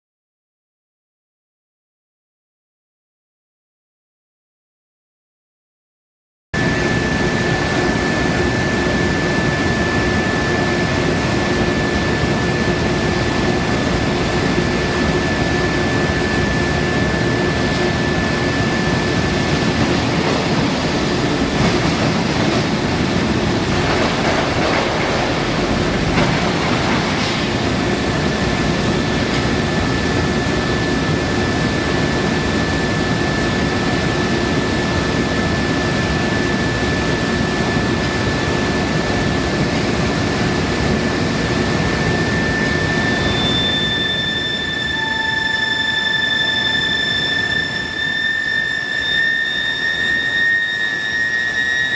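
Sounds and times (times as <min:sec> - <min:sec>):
industrial din: 0:06.6 - 0:31.8, 0:40.9 - 0:51.9
high-pitched furnace whine: 0:06.6 - 0:51.9.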